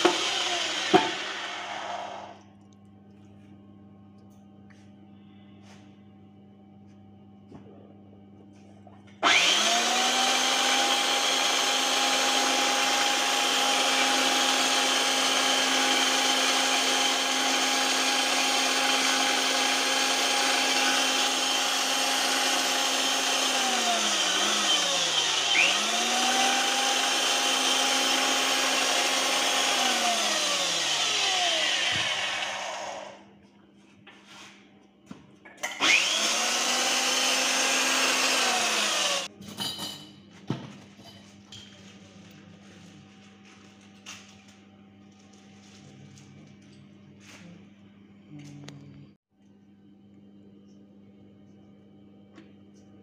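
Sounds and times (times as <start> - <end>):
pipe threading machine motor whine: 0.0 - 2.4, 9.1 - 33.3, 35.6 - 39.3.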